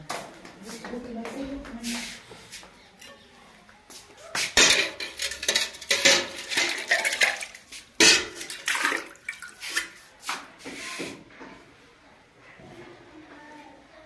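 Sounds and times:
rustling and scraping: 3.9s - 11.7s.

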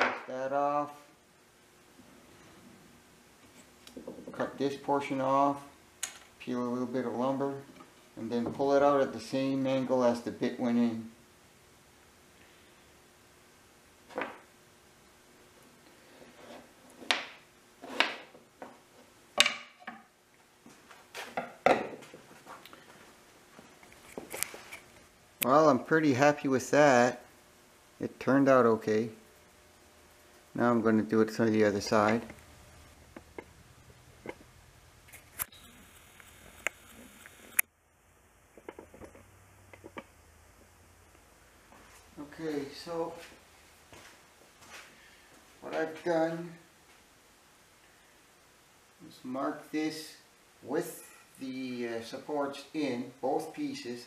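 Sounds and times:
wooden blocks knocking on a board: 19.4s - 20.0s
sharp clicks and knocks: 38.6s - 40.1s.

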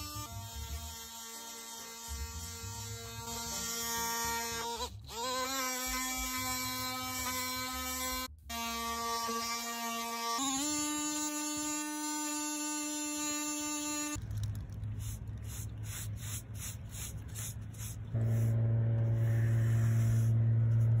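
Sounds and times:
low steady hum: 13.4s - 21.0s
paintbrush strokes: 14.2s - 21.0s
oscillating multitool sanding: 15.4s - 21.0s.

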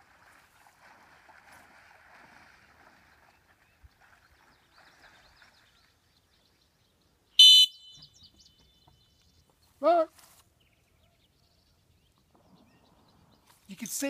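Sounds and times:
shrill training whistle blast: 7.4s - 8.1s.

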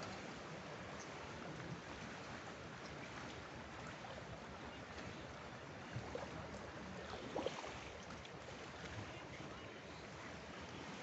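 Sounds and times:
water lapping: 0.0s - 11.0s.

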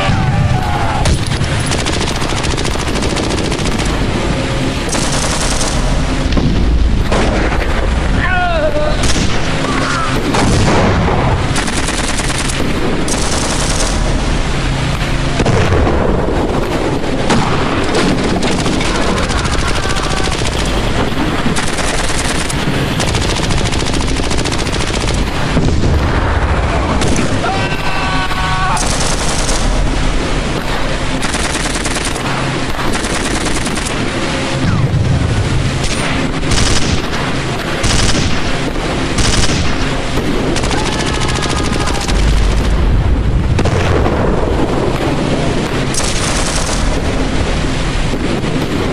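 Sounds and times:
machine-gun fire: 1.1s - 4.1s, 4.8s - 6.5s, 10.3s - 14.2s, 17.3s - 26.0s, 28.8s - 30.0s, 31.1s - 34.1s, 35.8s - 42.8s, 45.9s - 47.2s
explosion booms: 10.3s - 11.5s, 15.4s - 16.6s, 42.1s - 44.9s.

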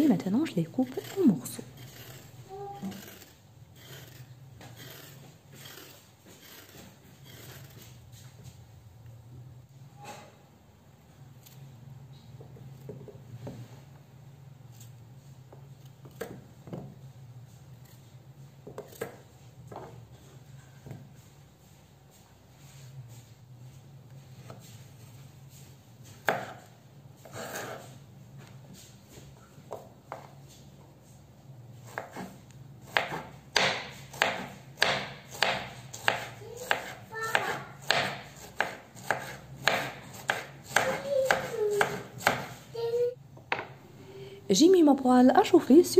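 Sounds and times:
knife on cutting board: 0.8s - 8.0s, 26.1s - 28.0s, 31.8s - 42.6s.

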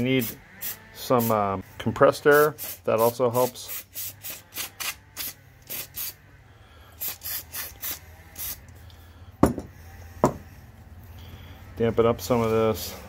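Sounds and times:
aerosol spray spritzes: 2.6s - 6.2s, 7.0s - 8.6s.

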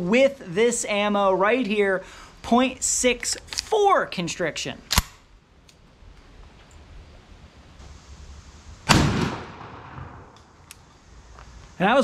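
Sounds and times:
shotgun shot: 8.8s - 10.4s.

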